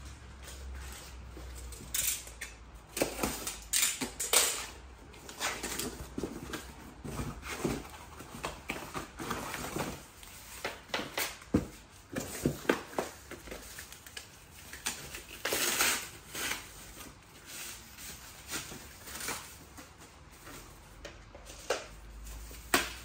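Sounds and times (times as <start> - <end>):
cardboard box rustling and scraping: 5.2 - 10.5.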